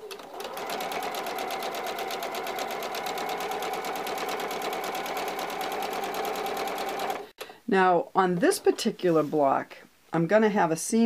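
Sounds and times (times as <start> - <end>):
sewing machine stitching: 0.0 - 7.2.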